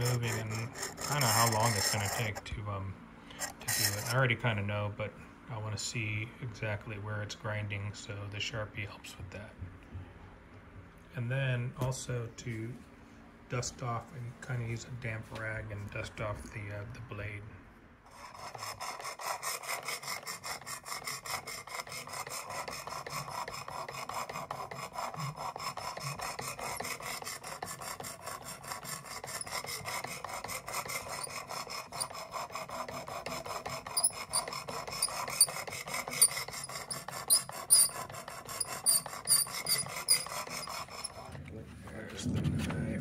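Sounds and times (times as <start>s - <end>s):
sharpening stone rasping on knife: 0.0s - 2.4s, 3.4s - 4.2s, 18.1s - 41.2s.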